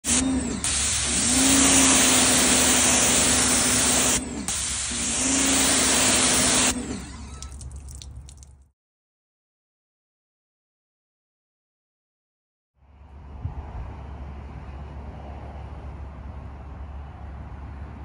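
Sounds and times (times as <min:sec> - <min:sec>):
pressure washer spraying: 0:00.0 - 0:08.4
pump motor humming: 0:00.0 - 0:08.6.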